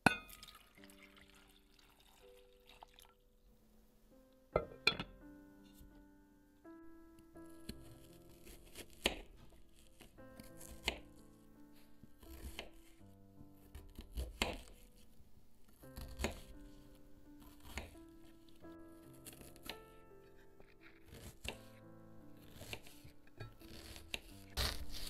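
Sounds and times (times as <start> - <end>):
soft background music: 0.0 - 25.0
knife slicing onion: 7.5 - 11.1, 12.2 - 15.0, 15.7 - 16.6, 17.4 - 18.0, 19.2 - 19.8, 20.9 - 21.8, 22.4 - 25.0.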